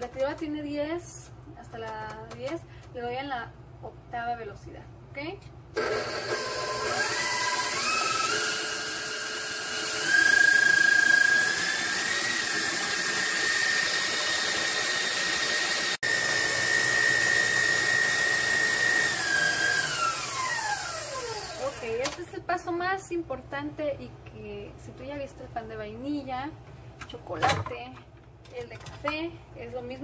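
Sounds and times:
stand mixer whisking: 5.8 - 21.8.

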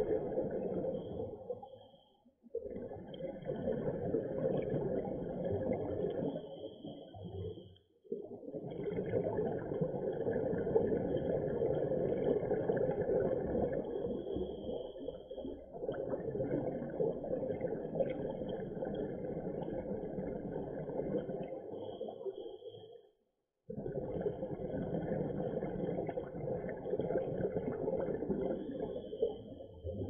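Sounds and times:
underwater rumble: 0.0 - 22.8, 23.7 - 30.0.

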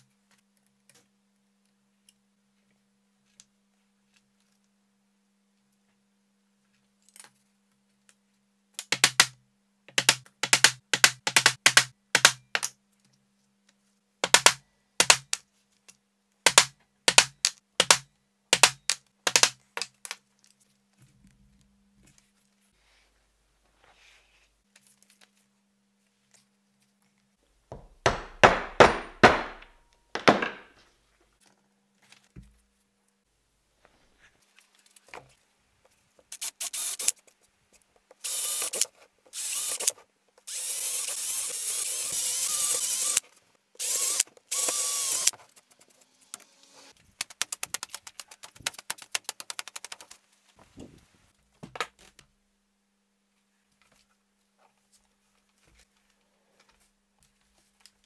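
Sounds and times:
electric drill boring wood: 36.4 - 37.1, 38.2 - 38.8, 39.4 - 39.9, 40.5 - 43.2, 43.8 - 45.3.

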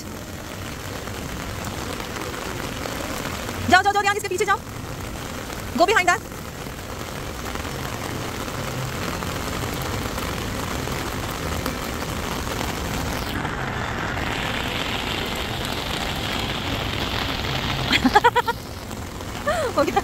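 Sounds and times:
rain on wet paving: 0.0 - 20.0.

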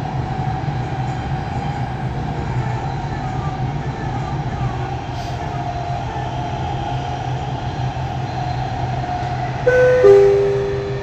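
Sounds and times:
train rumble with motor whine: 0.0 - 11.0
two-note descending chime: 9.7 - 11.0.

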